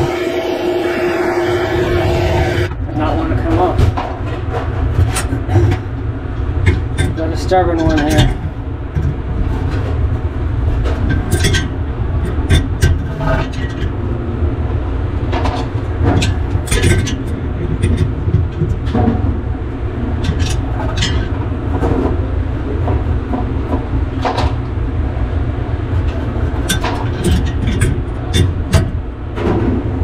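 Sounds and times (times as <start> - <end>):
low rumble: 0.0 - 7.6.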